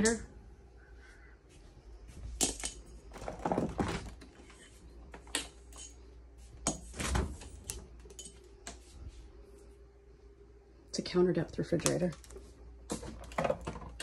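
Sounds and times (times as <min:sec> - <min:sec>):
refrigerator doors knocking and rattling: 0:03.1 - 0:04.3.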